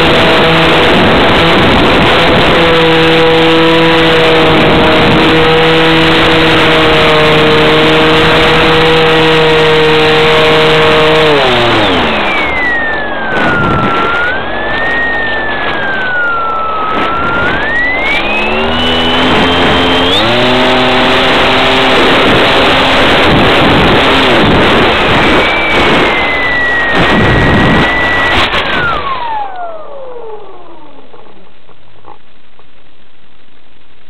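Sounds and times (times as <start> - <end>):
electric motor and propeller whining: 0.0 - 32.3
rush of air: 11.8 - 20.6, 21.9 - 30.1.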